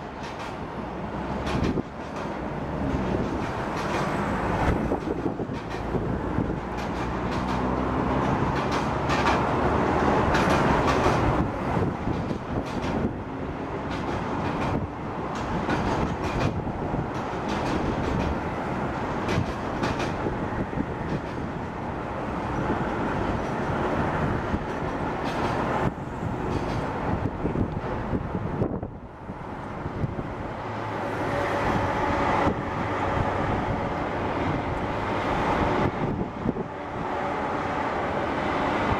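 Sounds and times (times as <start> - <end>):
wheels clacking over rail joints: 0.0 - 28.2
train wheels rumbling on rail: 0.0 - 38.9.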